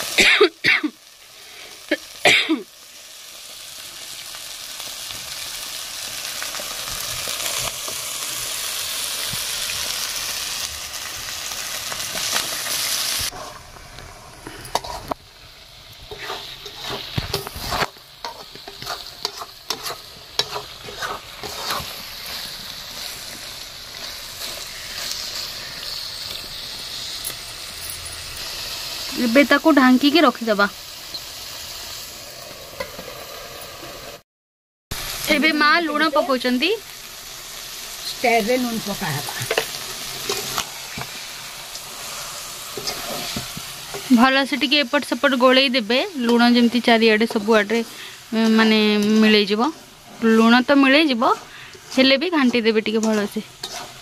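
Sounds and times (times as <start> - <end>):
chicken sizzling in pot: 0.0 - 34.2, 34.9 - 54.0
metal spatula scraping pot: 13.3 - 13.7, 14.6 - 15.2, 16.1 - 26.4, 39.3 - 41.2, 42.0 - 44.1, 46.3 - 54.0.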